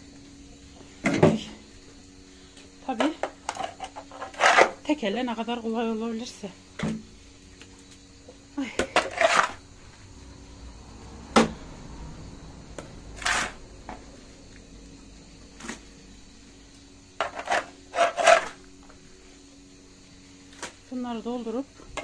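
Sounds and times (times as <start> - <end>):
steady low hum: 0.0 - 22.0
manure scooping scrapes and knocks: 3.3 - 4.9, 9.0 - 9.6, 13.2 - 13.6, 15.6 - 15.9, 17.2 - 18.6.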